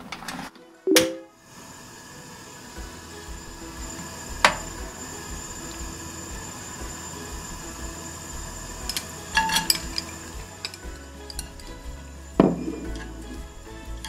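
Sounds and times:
soft background music: 0.1s - 14.0s
utensils clinking on frying pan: 8.7s - 14.0s.

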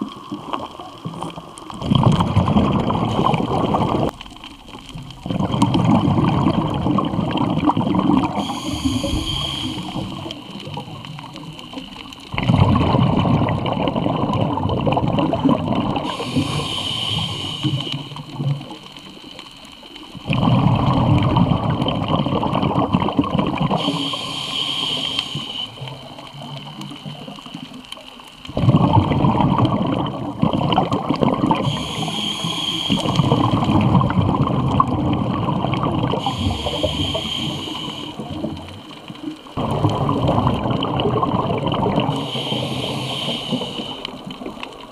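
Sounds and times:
gurgling exhaled bubbles: 0.0s - 44.9s
regulator hissing inhale: 8.3s - 10.7s, 16.0s - 19.1s, 23.8s - 26.0s, 31.6s - 33.6s, 36.2s - 38.3s, 42.1s - 44.5s.

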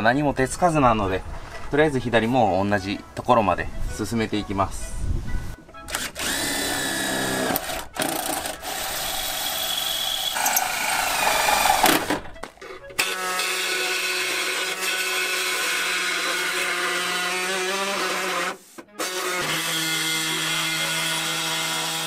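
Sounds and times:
power tool whirring whine: 5.9s - 12.2s, 13.0s - 22.0s
pneumatic tool humming: 5.9s - 15.8s.

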